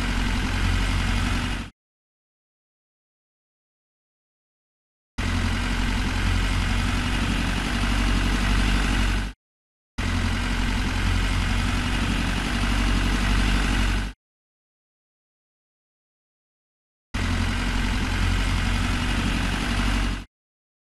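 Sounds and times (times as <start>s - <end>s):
engine idling: 0.0s - 1.7s, 5.2s - 9.4s, 10.0s - 14.2s, 17.2s - 20.3s.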